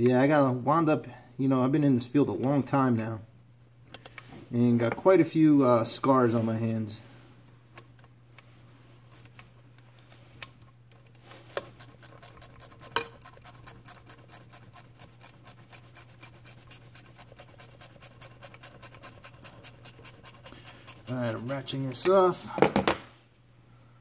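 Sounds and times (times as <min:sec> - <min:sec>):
ratcheting wrench clicking: 0:10.9 - 0:22.1.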